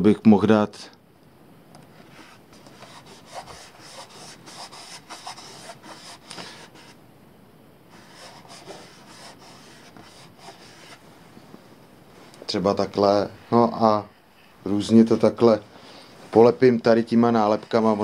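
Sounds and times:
hand rubbing sticker on plastic: 2.1 - 7.0, 7.9 - 11.0.

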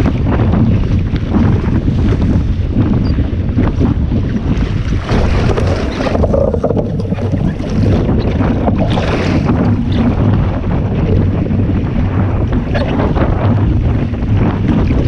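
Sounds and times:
wind buffeting microphone: 0.0 - 15.0
water splashes: 4.2 - 11.3.

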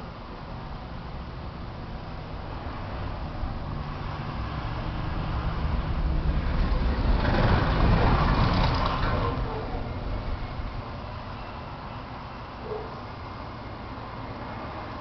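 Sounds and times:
motor vehicle passing by: 2.3 - 11.5.

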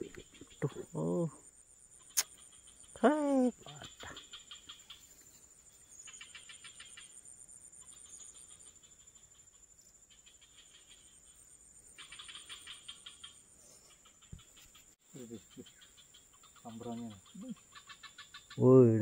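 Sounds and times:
insect chorus drone: 0.0 - 19.0
rapid pulsed insect trills: 0.0 - 19.0.

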